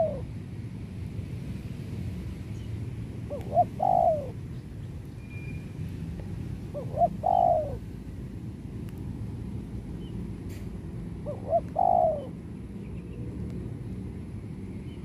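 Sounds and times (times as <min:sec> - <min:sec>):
dove cooing: 0:00.0 - 0:00.3, 0:03.3 - 0:04.4, 0:06.7 - 0:07.9, 0:11.2 - 0:12.4.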